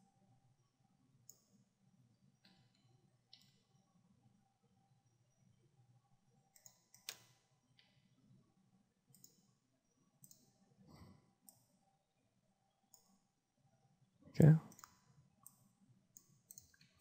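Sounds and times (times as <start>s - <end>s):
mouse and keyboard clicks: 6.6s - 7.4s, 16.2s - 17.0s.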